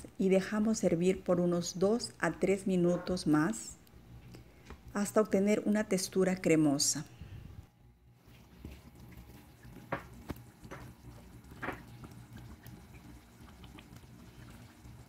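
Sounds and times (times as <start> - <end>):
sauce simmering and bubbling: 8.0 - 15.0.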